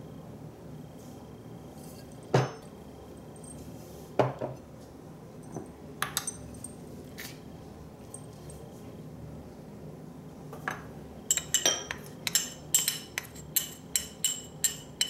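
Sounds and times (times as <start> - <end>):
kitchen utensils knocking and clinking: 2.3 - 2.6, 10.7 - 15.0.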